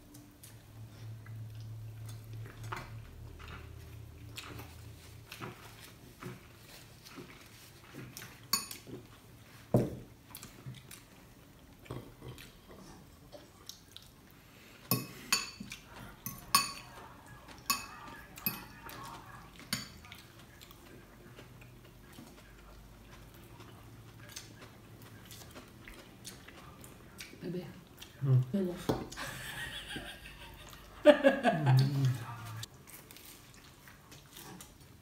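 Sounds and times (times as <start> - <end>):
fork clinking on glass bowl: 17.6 - 18.8.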